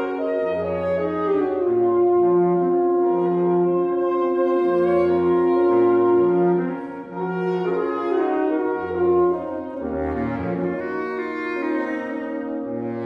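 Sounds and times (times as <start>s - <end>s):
saxophone quartet playing a tango: 0.0s - 13.0s.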